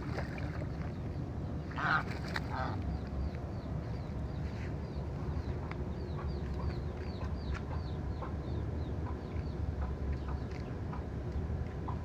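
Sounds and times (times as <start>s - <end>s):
goose nasal calls: 1.8s - 2.8s.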